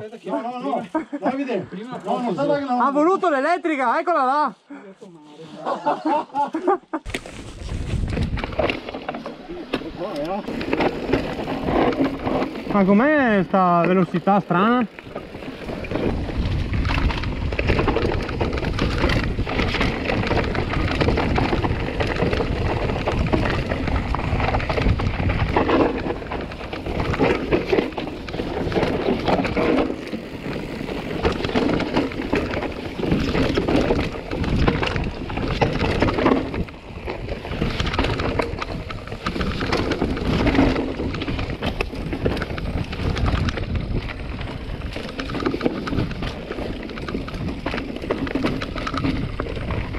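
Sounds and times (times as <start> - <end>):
bike rattling: 0.0 - 4.4, 5.8 - 49.9
tyres rumbling over dirt and stones: 7.1 - 49.9
wind buffeting microphone: 7.2 - 8.9, 15.0 - 49.9.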